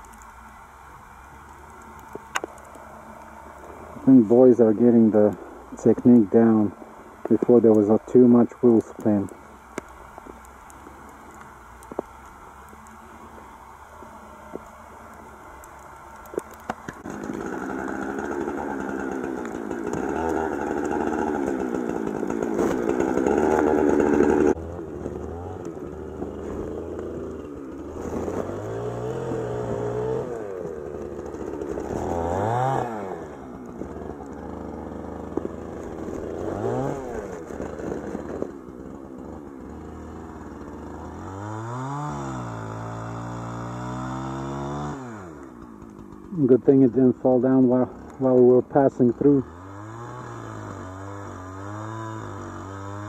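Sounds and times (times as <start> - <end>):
chainsaw idling and revving: 0.0 - 53.0
engine running at high revs: 16.6 - 46.4, 49.2 - 53.0.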